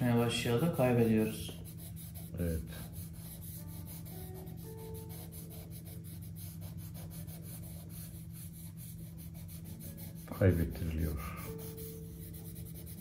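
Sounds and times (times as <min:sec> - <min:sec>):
pencil scratching on paper: 0:00.3 - 0:13.0.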